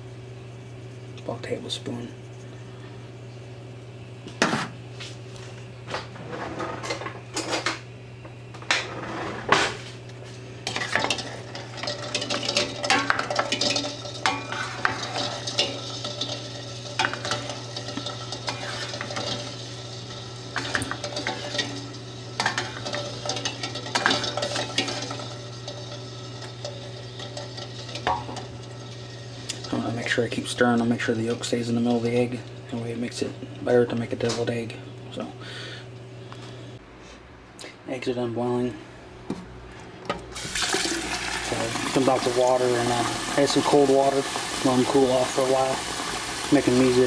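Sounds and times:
utensil scraping a metal pot: 0:10.7 - 0:30.2.

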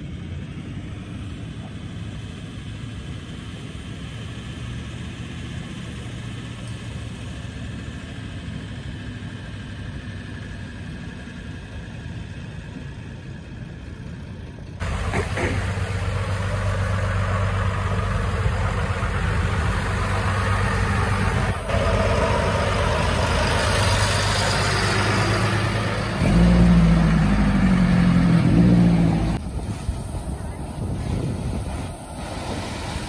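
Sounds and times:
engine hum: 0:00.0 - 0:33.0
vehicle engines running: 0:00.0 - 0:33.0
rushing noise: 0:14.8 - 0:33.0.

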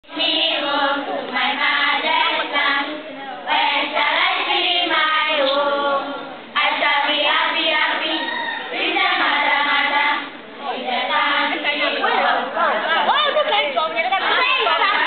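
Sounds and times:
children singing in unison: 0:00.1 - 0:12.8.

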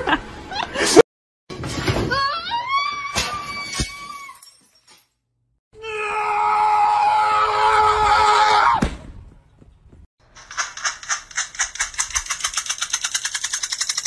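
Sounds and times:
loud steady scream: 0:05.8 - 0:08.8.

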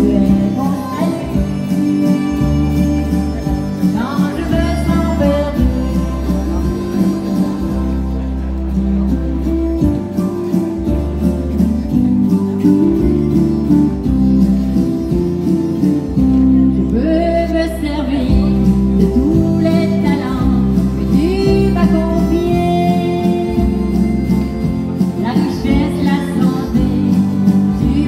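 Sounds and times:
woman singing: 0:00.0 - 0:03.0, 0:03.8 - 0:07.9, 0:16.8 - 0:28.0
harmonica: 0:00.0 - 0:08.4, 0:21.8 - 0:25.6
acoustic guitar strumming: 0:00.0 - 0:16.7, 0:18.4 - 0:28.0
keyboard: 0:00.0 - 0:28.0.

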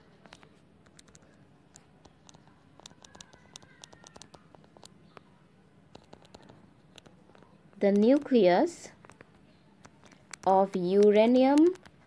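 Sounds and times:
stylus tapping on tablet screen: 0:00.8 - 0:05.2, 0:09.0 - 0:12.0.

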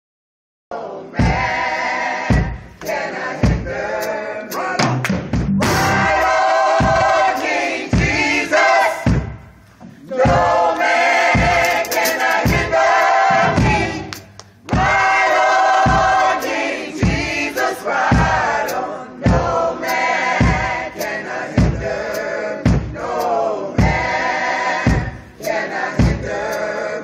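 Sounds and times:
gospel choir singing: 0:00.7 - 0:27.0
drum beat thumping: 0:01.1 - 0:26.9.

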